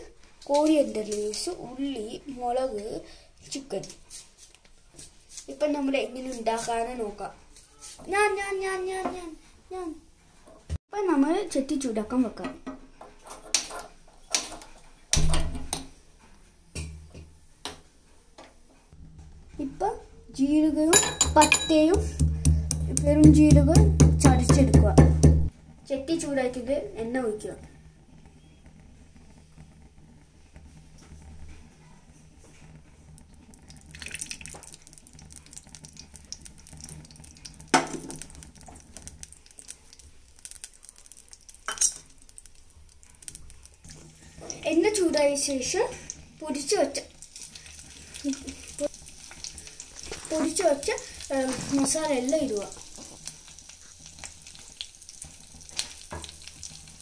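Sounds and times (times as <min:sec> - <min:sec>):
oil crackling in a pot: 0:00.0 - 0:09.4, 0:13.1 - 0:16.0, 0:25.5 - 0:57.0
kitchenware clanking: 0:20.9 - 0:22.2
clay pot clicking on burner grate: 0:33.2 - 0:43.8.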